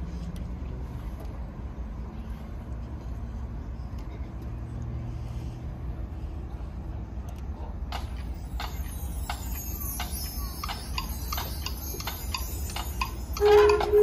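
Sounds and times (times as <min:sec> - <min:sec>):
steady low rumble: 0:00.0 - 0:14.0
sharp count-off clicks: 0:07.9 - 0:14.0.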